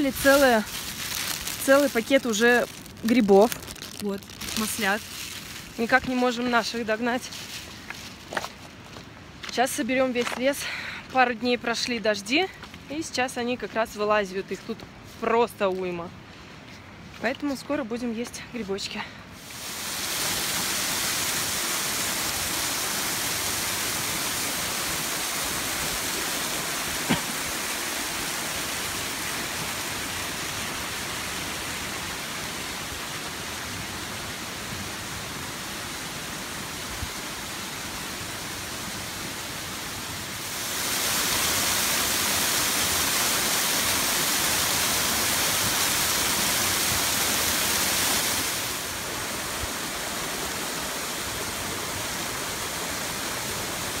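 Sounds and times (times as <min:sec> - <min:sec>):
waterfall rushing and splashing: 0:19.3 - 0:54.0.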